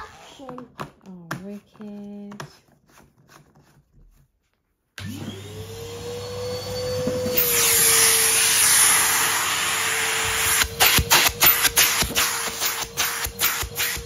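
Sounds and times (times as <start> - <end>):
vacuum cleaner motor whine: 5.0 - 14.0
vacuum suction air rush: 5.8 - 14.0.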